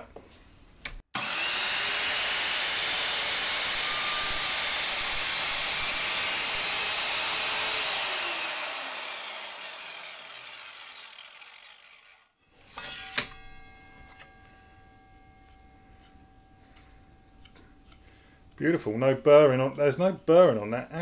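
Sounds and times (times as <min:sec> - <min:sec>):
saw motor spinning down: 0:01.2 - 0:13.0
mitre saw cutting plastic pipe: 0:01.2 - 0:13.4.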